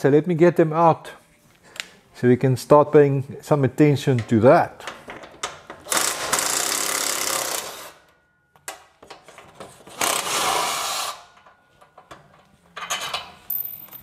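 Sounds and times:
ratchet wrench clicking: 5.8 - 8.0.

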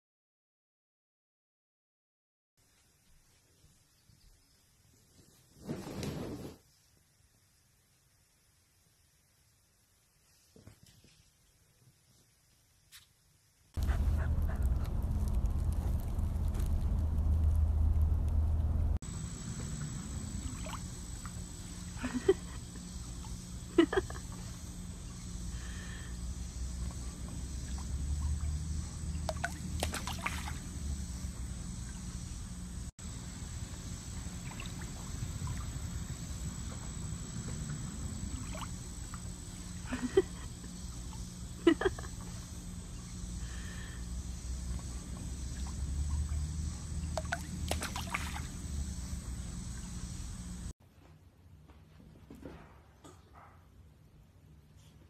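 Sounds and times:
low outdoor rumble: 13.8 - 50.7
water lapping and sloshing: 19.5 - 25.0, 26.8 - 30.9, 34.2 - 39.9, 44.6 - 50.6.

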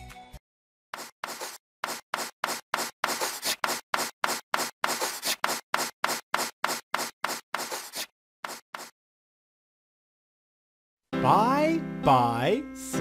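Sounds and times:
chalk scratching on blackboard: 1.0 - 9.0.

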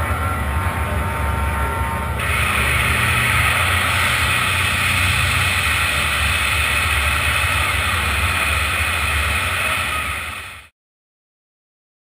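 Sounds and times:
loud rushing noise: 2.2 - 10.7.

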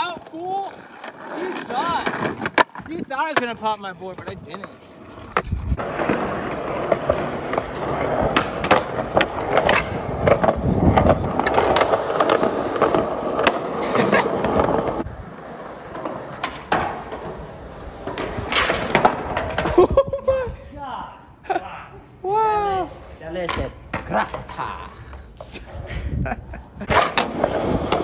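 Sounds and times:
skateboard clacks: 0.0 - 19.7
skateboard wheels rolling on concrete: 0.0 - 28.0.

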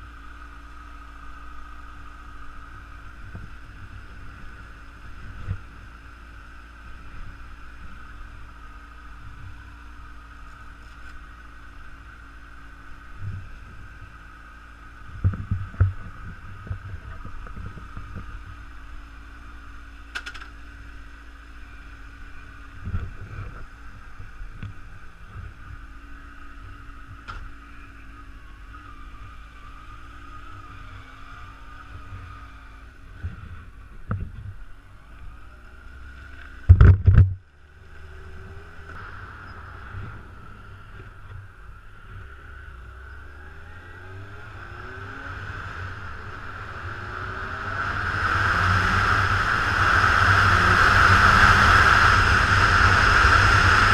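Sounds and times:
motorcycle engine running: 0.0 - 53.9
wind noise: 22.8 - 25.8, 36.7 - 37.4, 45.4 - 53.9.

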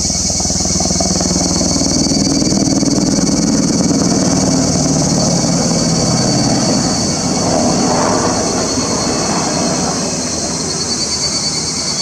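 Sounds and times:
high-pitched buzz: 0.0 - 12.0
passing vehicle rumble: 0.0 - 12.0.

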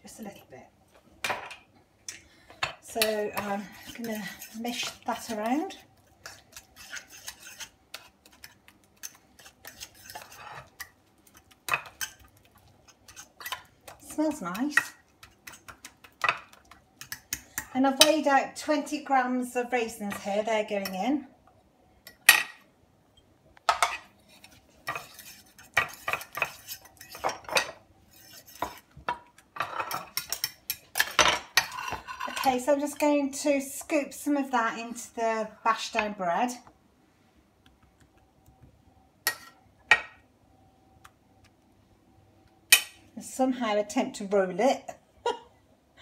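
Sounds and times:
fork scraping on a plate: 6.2 - 10.9, 23.9 - 27.4, 28.1 - 28.9, 31.6 - 32.5.

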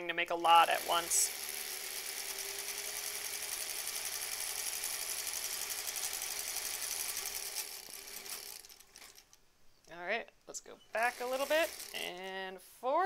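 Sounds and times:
sewing machine running: 0.4 - 9.3, 11.0 - 12.2.

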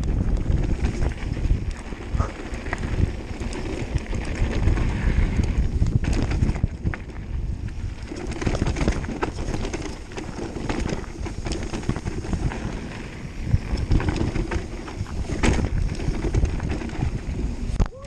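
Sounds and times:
tyres rumbling on dirt: 0.0 - 17.8
bike rattling and clicking: 0.0 - 18.0
wind buffeting microphone: 0.0 - 18.0.

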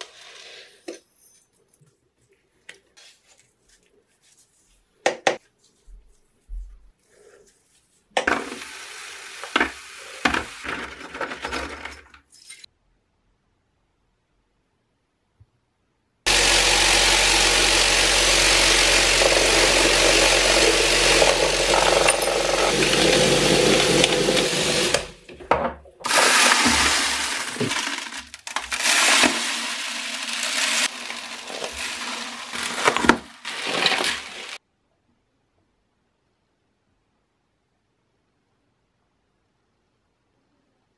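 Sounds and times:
grains pouring: 8.3 - 11.4, 16.3 - 25.2, 26.0 - 34.6
metal parts clinking: 11.0 - 12.7.

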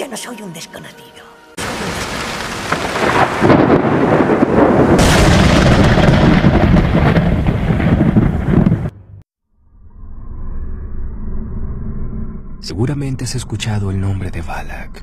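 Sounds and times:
rolling thunder: 1.6 - 9.2.

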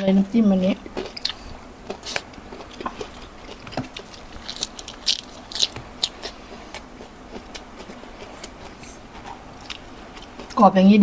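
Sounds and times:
crunchy chewing: 0.8 - 10.6.

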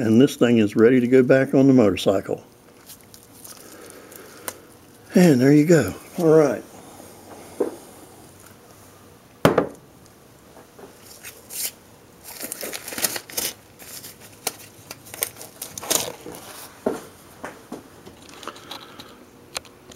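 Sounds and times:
crinkling and rustling: 2.6 - 5.1, 10.6 - 19.7
sharp knock on workbench: 9.5 - 9.8.

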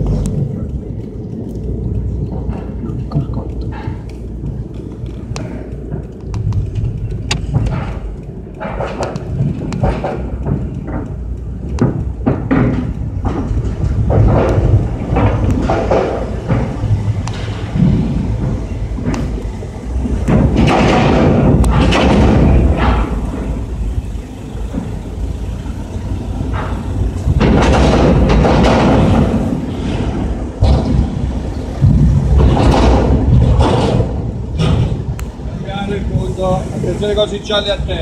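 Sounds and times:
car rumble: 0.0 - 38.0
thumps and knocks: 2.2 - 23.5, 26.4 - 35.4.

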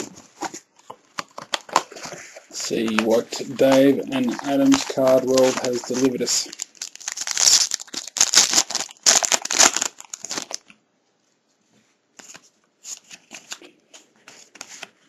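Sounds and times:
cards rustling: 0.0 - 10.7
foil wrapper crinkling and tearing: 1.2 - 10.7.

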